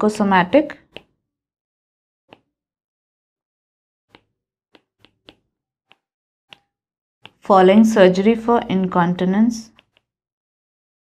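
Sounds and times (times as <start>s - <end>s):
stylus tapping on tablet: 0.7s - 1.1s, 4.1s - 7.9s.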